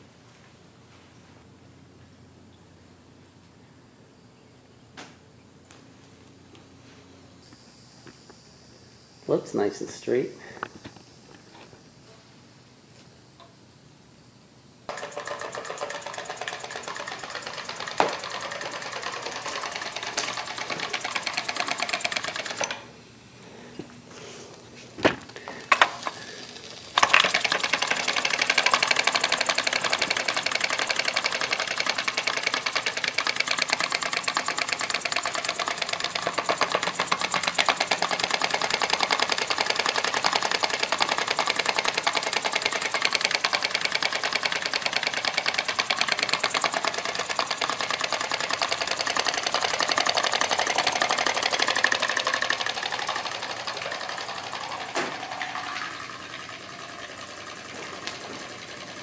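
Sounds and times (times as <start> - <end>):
model steam engine clattering: 14.9 - 22.9, 25.6 - 59.0.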